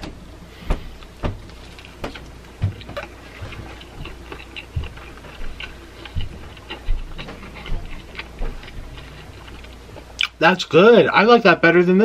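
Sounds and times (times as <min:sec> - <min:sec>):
chewing mouth smacks: 0:01.7 - 0:10.4.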